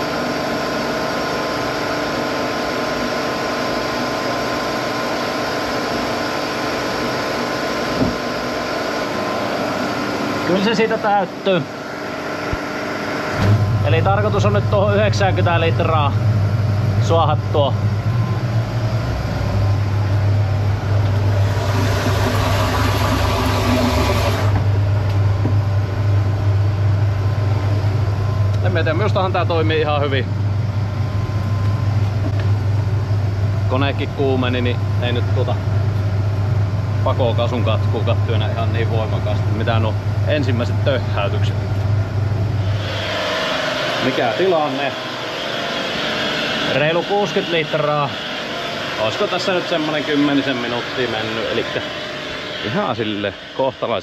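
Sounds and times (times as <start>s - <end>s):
pressure washer running: 0.0s - 26.5s, 37.1s - 53.6s
water jet spraying into plastic barrel: 21.4s - 24.6s.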